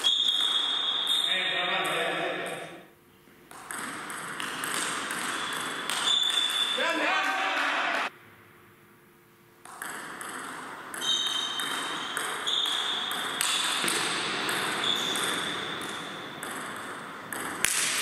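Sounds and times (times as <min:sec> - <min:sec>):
table tennis ball clicking: 0:03.5 - 0:06.7, 0:09.6 - 0:18.0.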